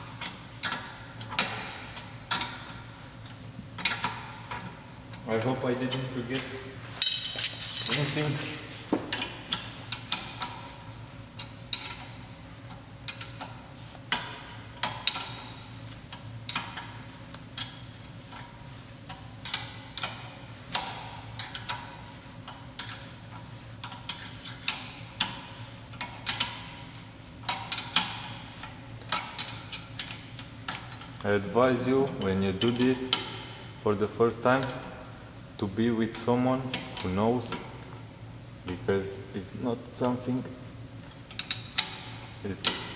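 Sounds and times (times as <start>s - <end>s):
wrenches clicking on metal: 23.8s - 26.8s, 29.1s - 31.0s, 41.3s - 42.9s.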